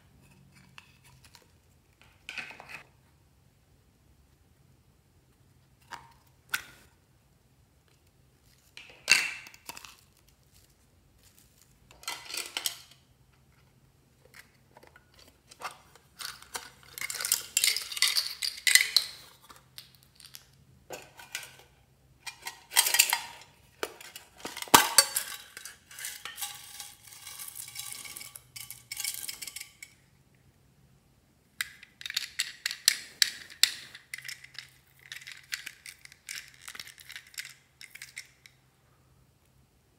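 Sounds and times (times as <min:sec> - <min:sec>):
plastic toys clicking and rattling: 0:11.2 - 0:13.0, 0:14.2 - 0:30.0, 0:31.6 - 0:38.6.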